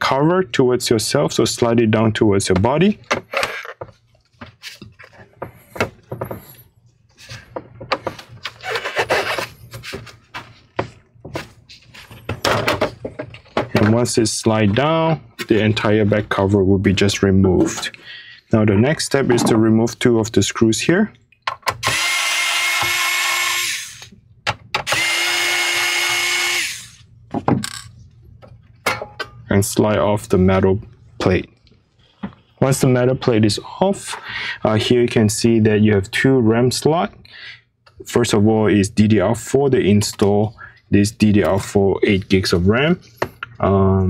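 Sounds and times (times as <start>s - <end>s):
plastic cover scraping: 7.2s - 10.8s
electric screwdriver whine: 21.8s - 24.1s, 24.9s - 27.0s.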